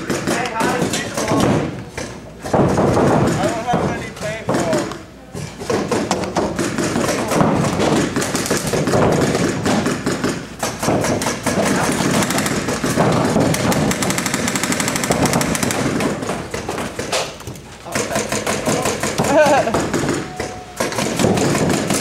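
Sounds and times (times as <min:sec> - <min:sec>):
paintball markers rapid firing: 0:00.0 - 0:22.0.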